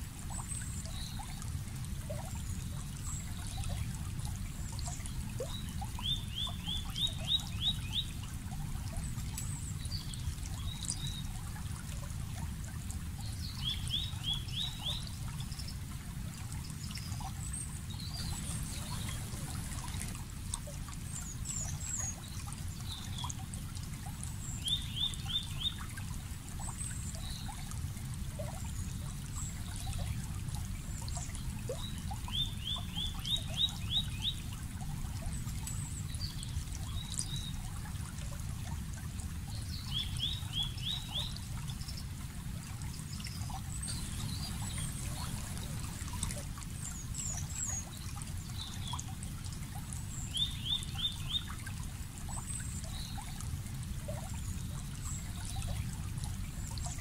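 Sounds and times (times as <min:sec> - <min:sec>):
creek water running: 0:00.0 - 0:57.0
birds chirping faintly: 0:18.0 - 0:20.2, 0:43.8 - 0:47.8.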